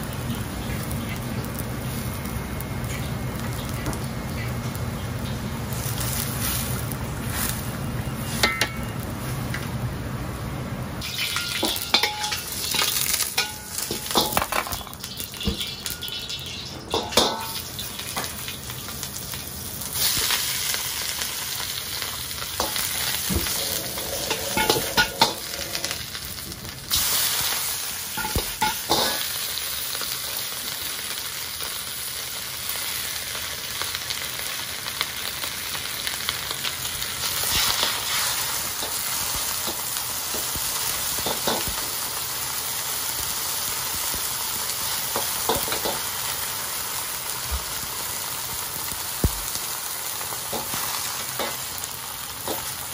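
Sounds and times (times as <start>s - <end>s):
low rumble of boiling pot: 0.0s - 32.5s
food sizzling in a wok: 0.0s - 52.9s.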